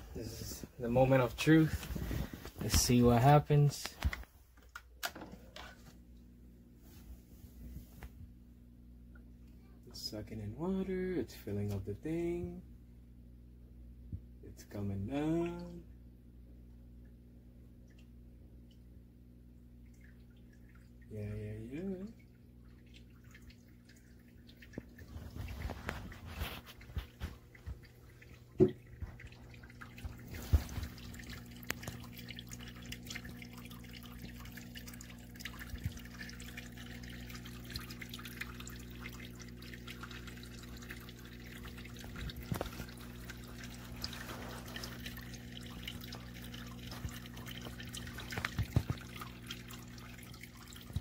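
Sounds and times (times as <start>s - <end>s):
steady low hum: 5.4s - 51.0s
water dripping and trickling: 17.8s - 51.0s.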